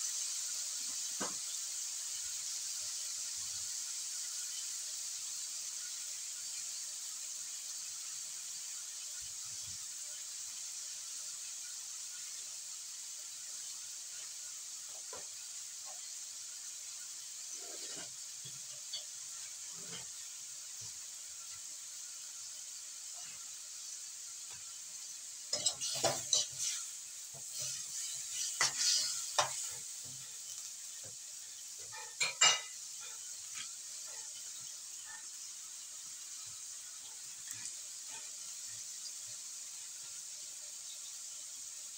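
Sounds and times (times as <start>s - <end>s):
food sizzling in a wok: 0.0s - 41.9s
utensil clattering against wok: 25.5s - 26.8s, 31.8s - 33.2s.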